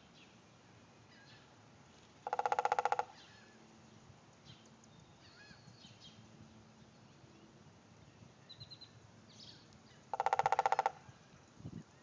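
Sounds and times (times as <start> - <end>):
faint bird chirps: 0.0 - 1.5, 2.3 - 6.2
woodpecker drumming: 2.2 - 3.3, 10.1 - 11.1.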